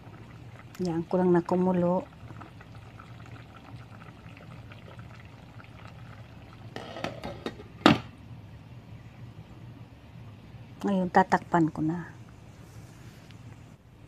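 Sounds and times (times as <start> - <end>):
sauce bubbling in pot: 0.0 - 7.6.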